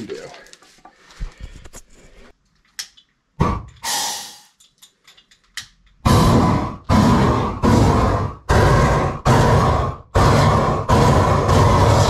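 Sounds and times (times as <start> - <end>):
gas torch flame hissing: 3.4 - 4.6, 6.0 - 12.0.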